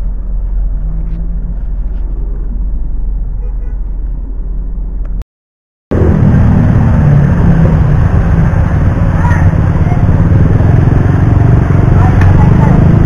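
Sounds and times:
car engine and road noise: 0.0 - 5.2, 5.9 - 13.0
street noise: 0.0 - 5.2, 5.9 - 13.0
wind: 0.0 - 5.2, 5.9 - 13.0
motorcycle engine running: 5.9 - 13.0.

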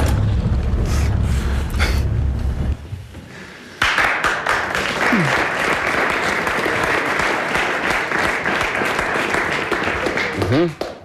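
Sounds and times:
audience applauding: 3.8 - 11.0.

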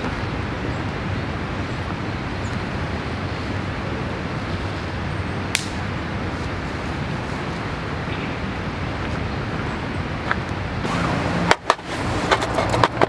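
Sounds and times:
low outdoor background noise: 0.0 - 13.0
twig snapping: 5.5 - 5.8.

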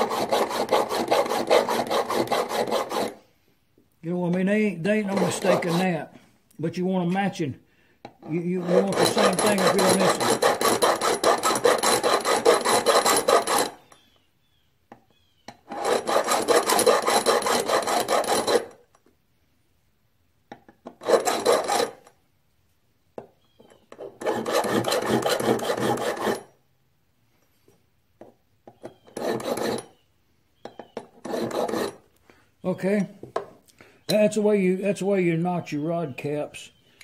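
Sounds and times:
file scraping metal: 0.0 - 3.2, 4.3 - 6.2, 8.2 - 14.0, 15.6 - 18.8, 20.8 - 22.1, 23.7 - 26.5, 28.7 - 30.0, 30.6 - 32.1.

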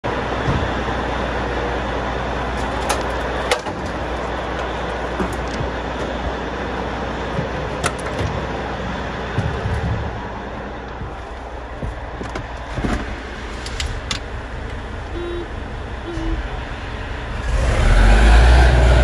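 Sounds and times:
diesel engine idling: 0.0 - 19.0
boots knocking on metal steps: 5.1 - 6.4, 7.2 - 8.5, 9.3 - 13.2.

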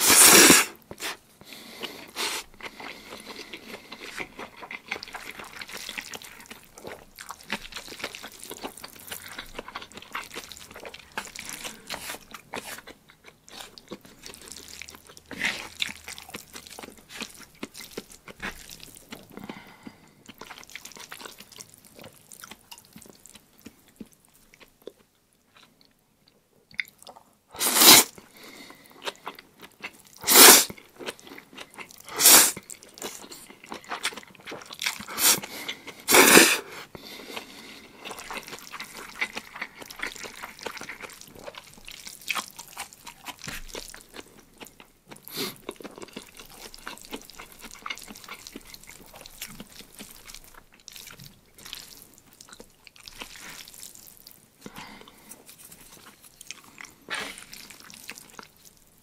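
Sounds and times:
loud noodle slurps: 0.0 - 1.2, 27.6 - 28.1, 30.2 - 30.8, 32.1 - 32.6, 35.1 - 35.5, 36.1 - 36.8
person chewing noodles: 0.0 - 59.0.

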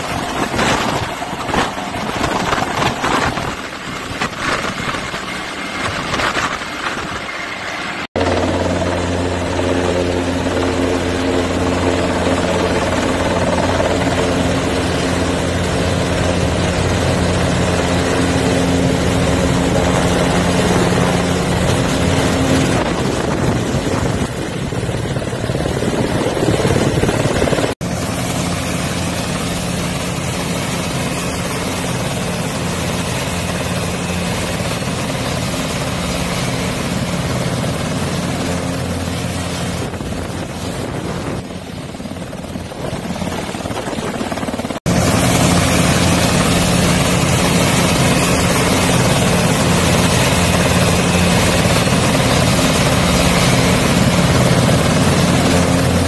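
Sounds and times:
helicopter engines and rotor: 0.0 - 56.0
high turbine whine: 0.0 - 56.0.

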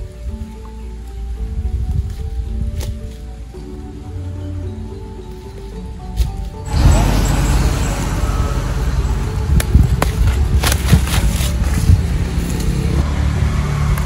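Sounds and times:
loud low rumble: 6.6 - 14.0
plant shoots snapping: 9.6 - 13.0.

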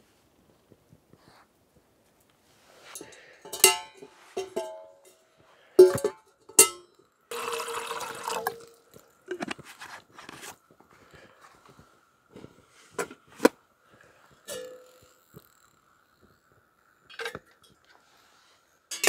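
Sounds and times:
metal cookware clanking: 2.9 - 5.2, 5.8 - 7.7, 14.5 - 15.2
water pouring into pot: 7.3 - 9.2.

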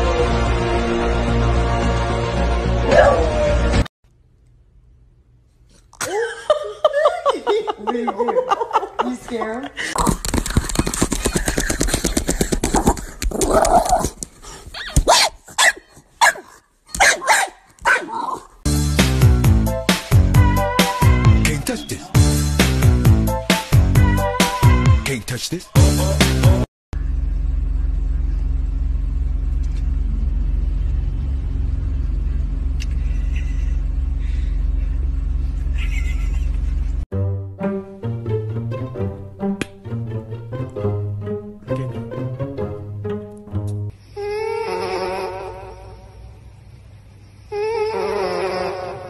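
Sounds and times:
music: 0.0 - 3.9, 18.7 - 25.2, 25.8 - 26.7, 37.1 - 43.9
dog barking: 15.0 - 18.4
car engine rumble and road noise: 27.0 - 37.0.

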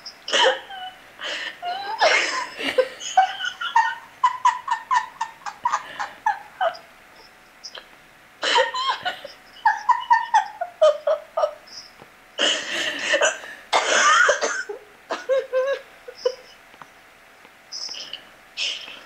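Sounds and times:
woman laughing: 0.3 - 1.0, 1.6 - 6.9, 7.7 - 16.6.

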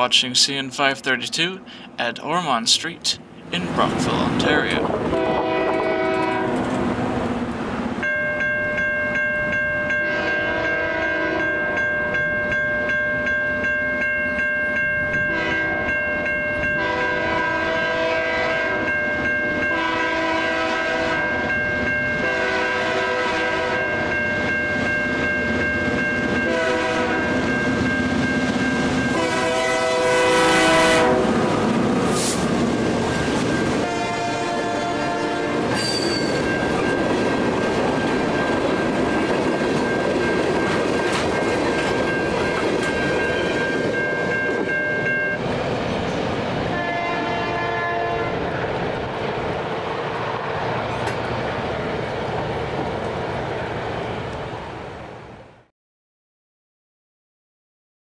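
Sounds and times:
train air horn blasts: 5.2 - 6.6, 10.0 - 11.5, 15.3 - 15.9, 16.8 - 18.9, 19.7 - 21.4, 22.2 - 23.9, 26.5 - 27.3, 29.1 - 31.4, 33.8 - 36.3, 46.7 - 48.4
crossing signal bell ringing: 8.0 - 17.9, 18.8 - 20.2, 21.1 - 22.4, 23.7 - 29.7, 33.0 - 34.2, 35.7 - 46.8
train wheels clattering: 35.7 - 44.6.

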